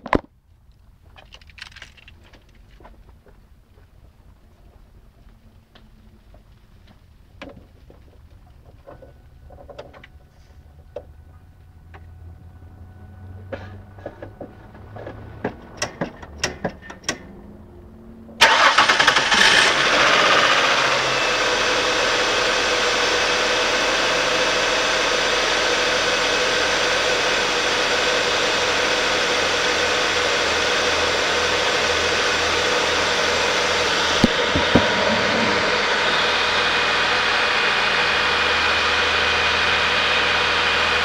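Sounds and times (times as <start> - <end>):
car engine starting and idling: 8.6 - 41.0.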